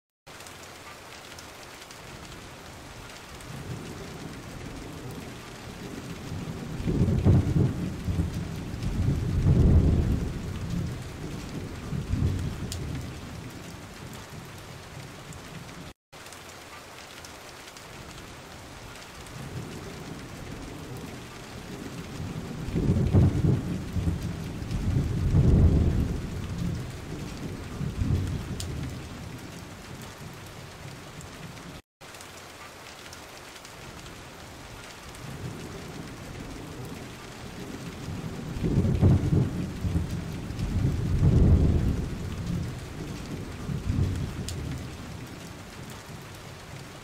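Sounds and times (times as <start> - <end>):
rain hiss: 0.3 - 47.0
rumbling thunder: 3.5 - 15.4, 19.3 - 31.3, 35.2 - 45.4.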